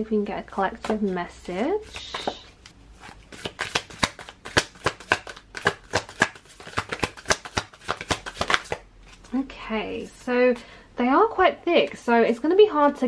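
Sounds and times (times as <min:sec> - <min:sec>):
cards being shuffled: 0:01.8 - 0:09.4.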